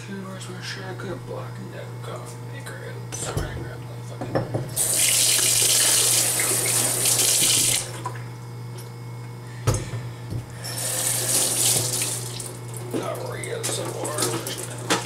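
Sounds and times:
steady low hum: 0:00.0 - 0:15.0
faucet running into metal sink: 0:04.8 - 0:07.9, 0:10.7 - 0:14.8.

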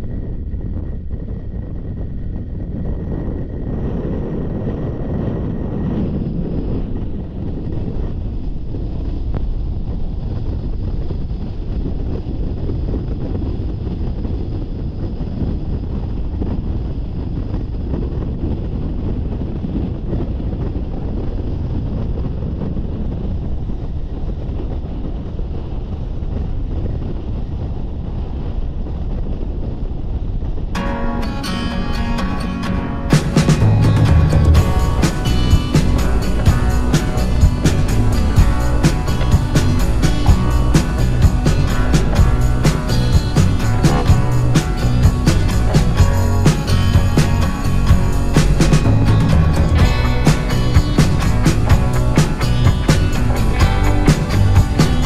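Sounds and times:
wind buffeting microphone: 0:00.0 - 0:55.0
car engine and tyre road noise: 0:22.8 - 0:55.0.

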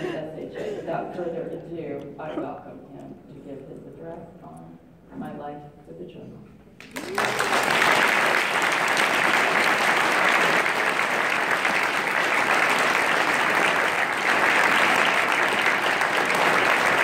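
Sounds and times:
audience applauding: 0:06.8 - 0:17.0.

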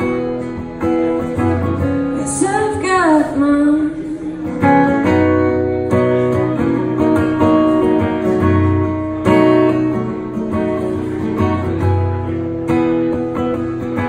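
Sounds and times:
acoustic guitar strummed chords: 0:00.0 - 0:14.0.

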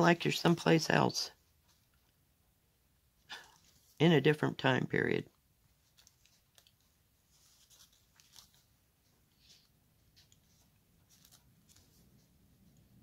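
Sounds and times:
floss drawn through fabric: 0:05.8 - 0:12.3.

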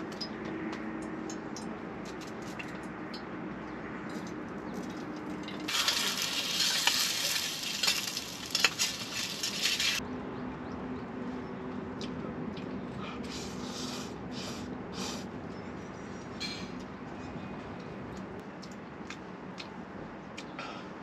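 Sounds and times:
food sizzling with pops: 0:05.7 - 0:10.0.

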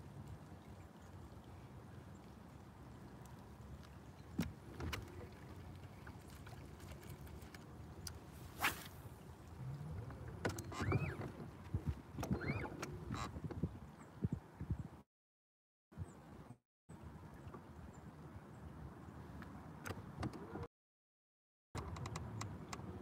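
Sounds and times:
fishing rod cast whoosh: 0:08.4 - 0:09.2
short squeaks: 0:10.5 - 0:11.4, 0:12.2 - 0:13.3.

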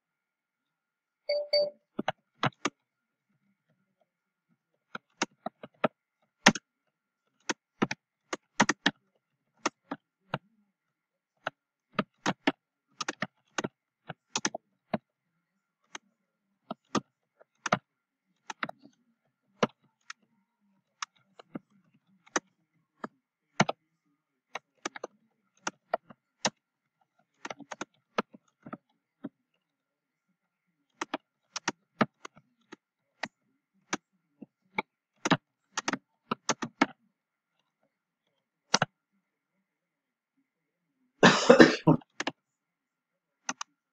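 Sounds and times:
keyboard keystroke clicks: 0:01.3 - 0:02.8, 0:35.2 - 0:37.0, 0:38.7 - 0:39.0.

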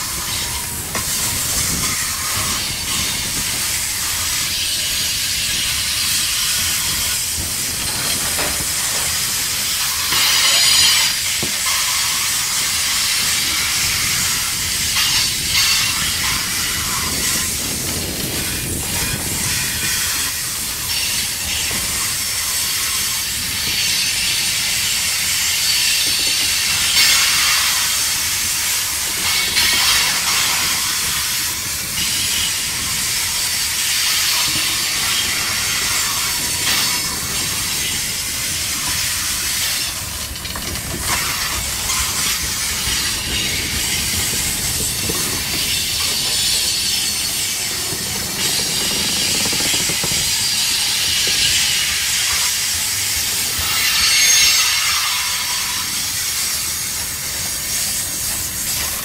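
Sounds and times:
train wheels rumbling on rails: 0:00.0 - 0:59.0
wheels knocking: 0:34.1 - 0:53.6.

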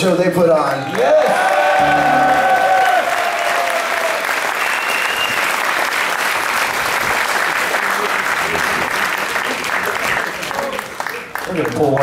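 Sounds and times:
audience applauding: 0:00.7 - 0:12.0
brief high tone: 0:01.8 - 0:02.8
held musical note: 0:01.8 - 0:03.0.

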